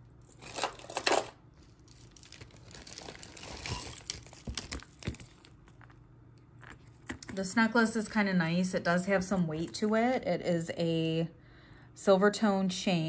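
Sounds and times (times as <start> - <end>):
metal chain links clinking: 0.2 - 5.9
hands rummaging and rustling: 0.4 - 6.0.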